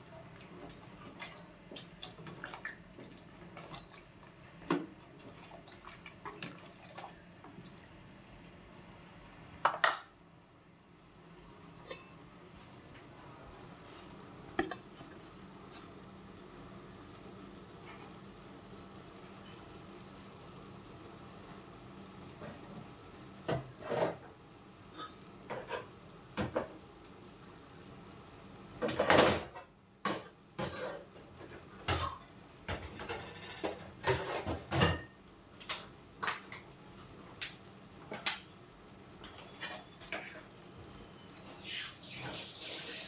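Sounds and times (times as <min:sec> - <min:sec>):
pans clattering: 0:31.9 - 0:35.2.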